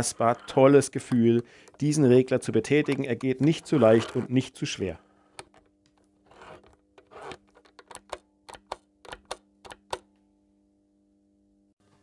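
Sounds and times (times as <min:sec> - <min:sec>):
knob scraping: 0:00.0 - 0:04.4, 0:06.2 - 0:08.2
control knob clicking: 0:02.7 - 0:04.2.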